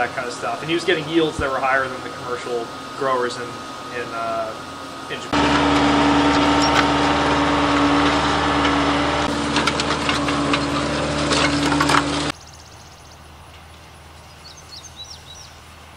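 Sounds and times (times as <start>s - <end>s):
tractor engine running: 0.0s - 12.4s
harrow discs crunching soil: 5.1s - 12.4s
faint bird chirps: 14.2s - 15.6s.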